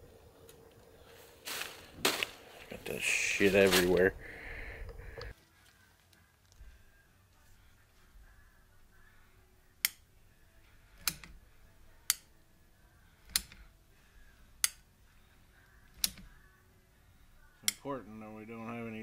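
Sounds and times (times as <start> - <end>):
caulking gun trigger clicking: 15.9 - 16.3.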